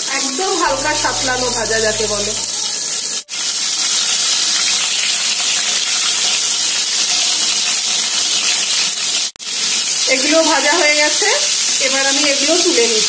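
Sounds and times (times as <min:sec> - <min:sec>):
oil sizzling in a frying pan: 0:00.2 - 0:13.0.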